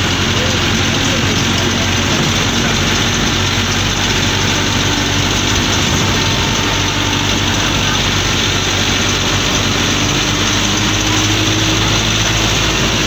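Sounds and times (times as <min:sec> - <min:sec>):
bus engine running: 0:00.0 - 0:13.0.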